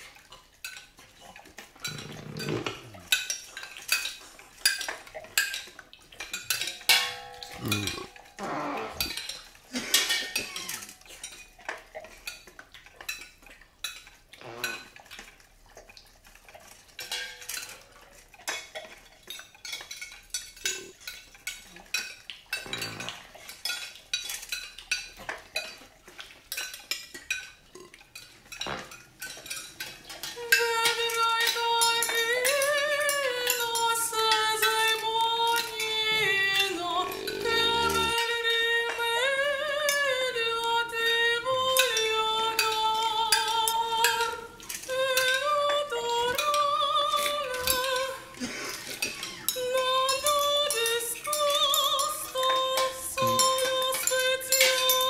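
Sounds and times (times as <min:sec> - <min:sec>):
ladle and spoons clinking on dishes: 0:00.0 - 0:15.4, 0:16.3 - 0:55.0
woman singing: 0:30.4 - 0:48.4, 0:49.5 - 0:55.0.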